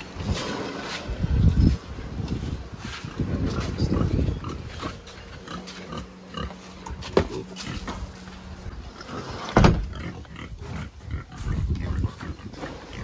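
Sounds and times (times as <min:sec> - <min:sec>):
pigs grunting: 0:03.0 - 0:13.0.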